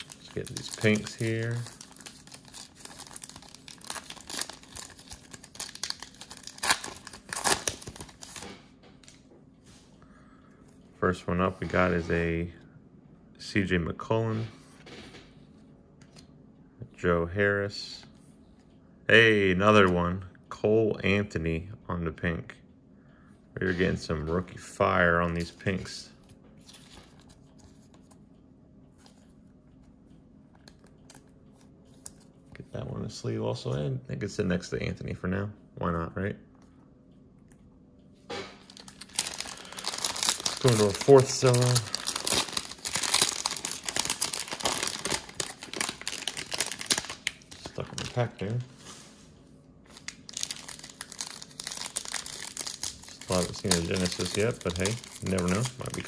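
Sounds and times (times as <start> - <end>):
plastic wrapper tearing and crinkling: 0.0 - 8.5, 38.6 - 48.5, 49.9 - 56.0
plastic sleeve rustling: 0.0 - 8.6, 38.6 - 49.2, 49.9 - 56.0
low steady hum: 0.0 - 56.0.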